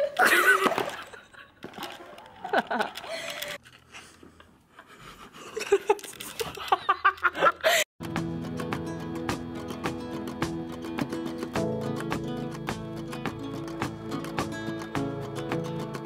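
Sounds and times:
girl laughing and giggling: 0:00.0 - 0:03.6, 0:04.9 - 0:07.9
strummed acoustic guitar music: 0:08.0 - 0:16.0.

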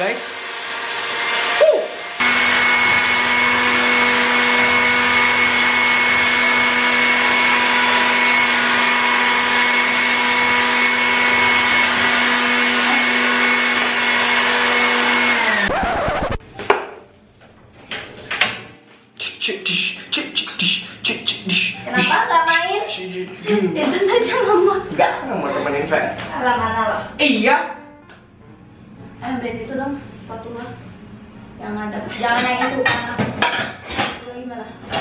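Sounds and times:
electric blender whining: 0:00.0 - 0:16.4.

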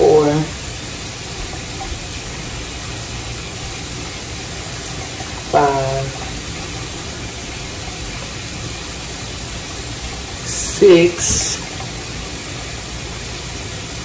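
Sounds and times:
person speaking a word: 0:05.6 - 0:06.2, 0:10.5 - 0:11.6.

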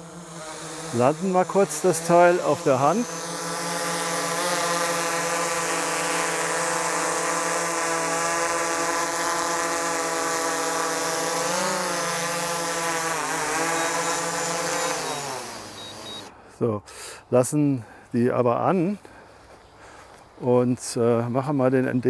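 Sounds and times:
drone propellers whining: 0:00.0 - 0:16.3.

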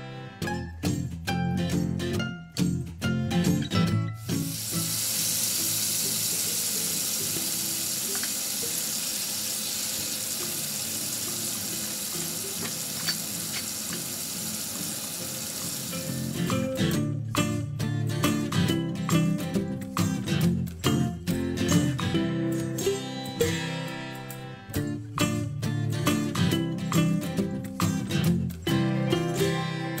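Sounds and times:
background music: 0:00.0 - 0:30.0
fish sizzling in a grill pan: 0:04.3 - 0:16.4.

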